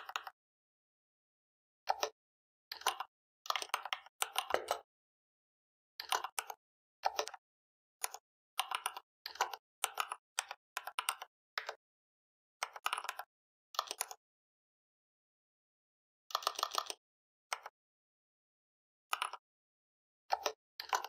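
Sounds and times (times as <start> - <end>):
computer keyboard typing: 1.9 - 4.9, 6.0 - 7.4, 8.0 - 11.8, 12.6 - 14.2, 16.3 - 17.0, 19.1 - 19.4.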